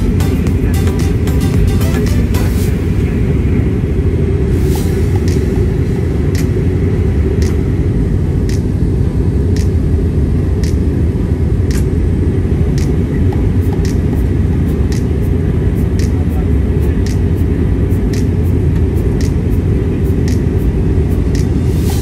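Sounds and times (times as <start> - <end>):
jet engine cabin rumble: 2.1 - 22.0.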